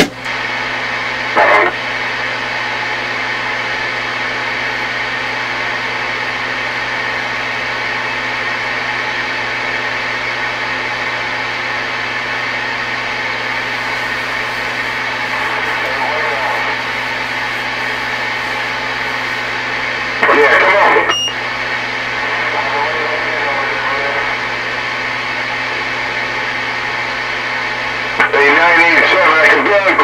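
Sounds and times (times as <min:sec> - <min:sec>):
radio static hiss: 0:00.2 - 0:30.0
low hum: 0:12.3 - 0:22.4.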